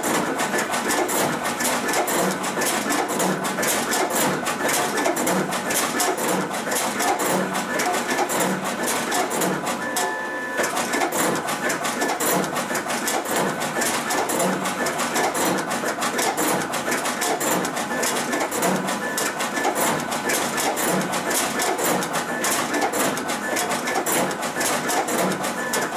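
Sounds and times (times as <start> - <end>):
machine clatter of rapid clicks: 0.0 - 25.9
machine whir: 0.0 - 25.9.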